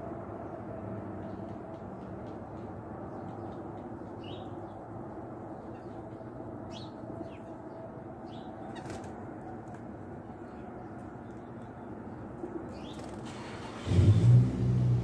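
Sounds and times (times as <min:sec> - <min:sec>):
wings fluttering: 0:08.7 - 0:09.9, 0:12.7 - 0:13.4.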